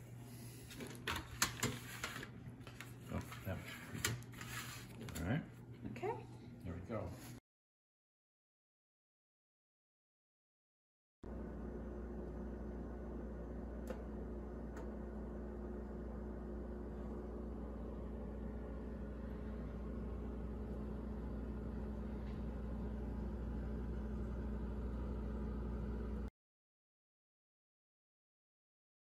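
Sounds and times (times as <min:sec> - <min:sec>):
refrigerator humming: 0:11.3 - 0:26.3.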